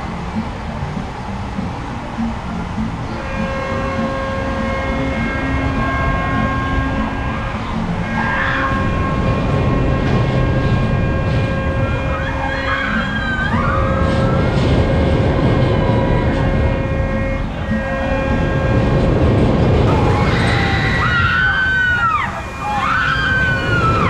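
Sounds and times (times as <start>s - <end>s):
ride mechanical rumble and whine: 0.0s - 24.0s
riders screaming: 8.0s - 9.4s, 11.5s - 15.0s, 19.9s - 24.0s.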